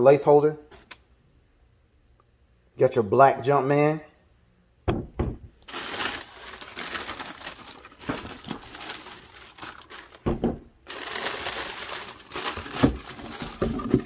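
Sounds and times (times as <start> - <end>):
tissue paper rustling: 5.7 - 14.0
dull thump: 10.2 - 10.7.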